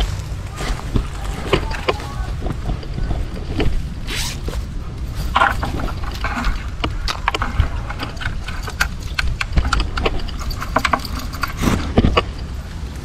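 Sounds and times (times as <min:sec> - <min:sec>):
mesh net rustling: 0:00.0 - 0:12.6
low rumble: 0:00.0 - 0:13.0
frame clicks and knocks: 0:05.2 - 0:12.5.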